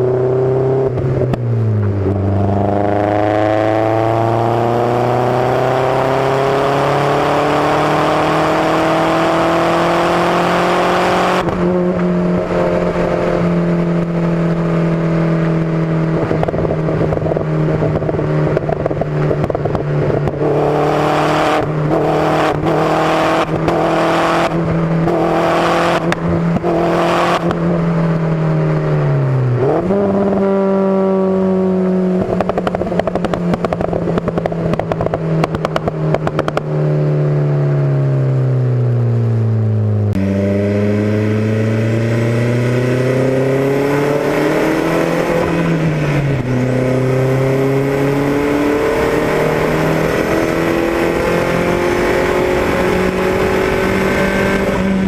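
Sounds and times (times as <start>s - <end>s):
car exhaust engine: 0.0s - 55.0s
exhaust pops and crackles: 16.1s - 20.5s, 32.2s - 36.8s.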